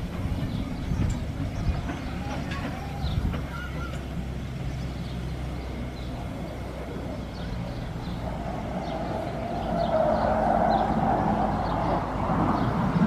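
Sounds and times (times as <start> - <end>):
steam locomotive rumbling: 0.0 - 13.0
short bird calls: 2.2 - 4.1.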